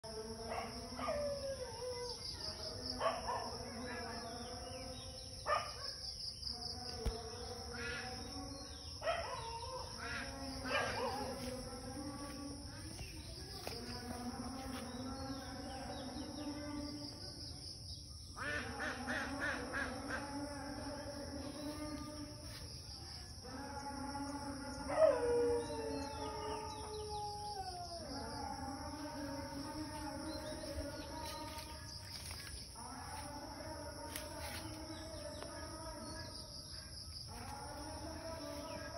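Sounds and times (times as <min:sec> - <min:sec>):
high-pitched insect chorus: 0:00.0 - 0:38.9.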